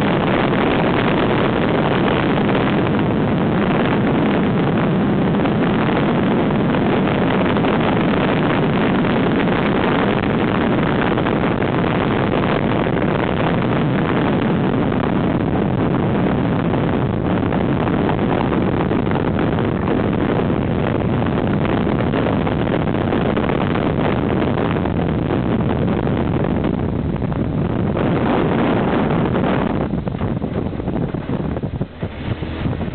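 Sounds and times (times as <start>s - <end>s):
wind across microphone: 0.0s - 32.9s
cars at highway speed: 28.7s - 32.9s.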